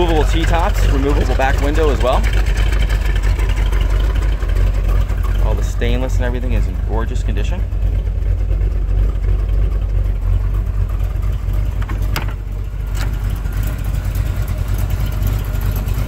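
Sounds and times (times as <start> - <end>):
car engine idling: 0.0 - 16.0.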